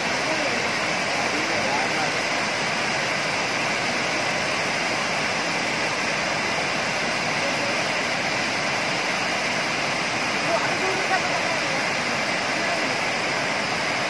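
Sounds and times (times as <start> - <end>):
water rushing over a weir: 0.0 - 14.0.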